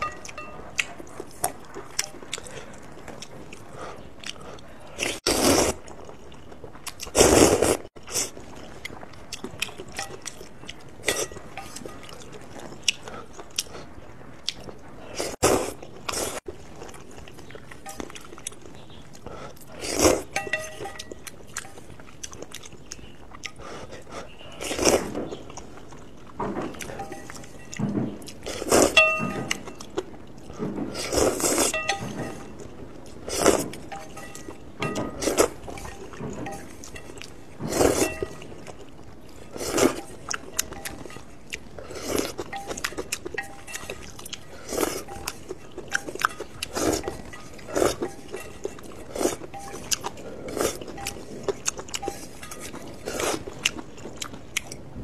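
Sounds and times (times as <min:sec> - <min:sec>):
chopsticks clinking on metal bowl: 0:00.0 - 0:02.2, 0:11.0 - 0:12.3, 0:20.2 - 0:21.9, 0:26.8 - 0:27.9, 0:28.6 - 0:29.9, 0:31.6 - 0:32.7, 0:33.4 - 0:38.8, 0:42.3 - 0:53.6
chewing: 0:00.0 - 0:55.0
slurping noodles: 0:05.0 - 0:05.9, 0:07.0 - 0:08.3.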